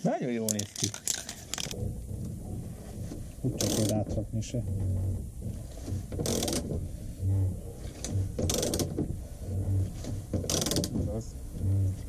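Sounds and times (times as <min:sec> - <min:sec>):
ratchet pawl clicks: 0:00.5 - 0:01.8, 0:03.6 - 0:04.0, 0:06.2 - 0:06.7, 0:08.4 - 0:09.0, 0:10.4 - 0:11.0.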